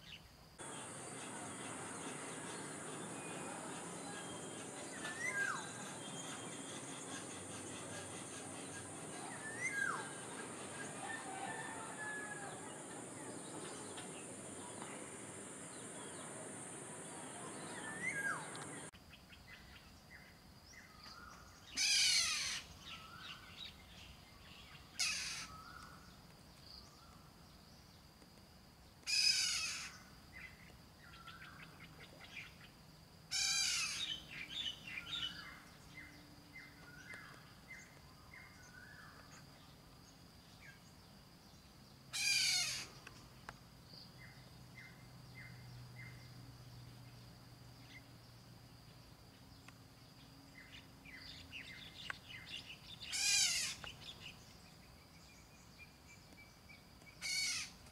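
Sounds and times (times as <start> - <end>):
steady hiss: 0.0 - 11.2, 12.6 - 18.9
bird chirps: 0.0 - 19.8
bird harsh calls: 0.6 - 18.9, 21.8 - 22.7, 25.0 - 25.6, 29.1 - 30.0, 33.3 - 35.4, 42.1 - 43.0, 53.0 - 53.9, 57.2 - 57.8.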